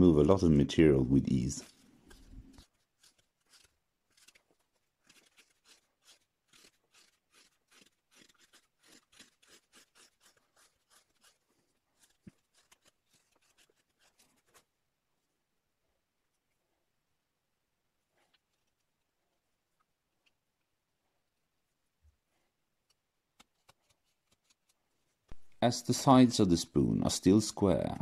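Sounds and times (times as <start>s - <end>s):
hook knife slicing wood: 2.1s - 11.4s.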